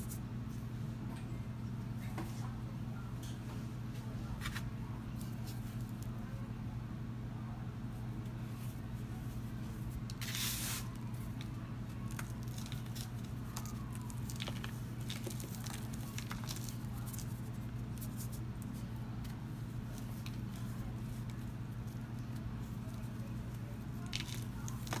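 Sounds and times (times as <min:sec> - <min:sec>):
powder ball crunching and crumbling: 0:08.5 - 0:25.0.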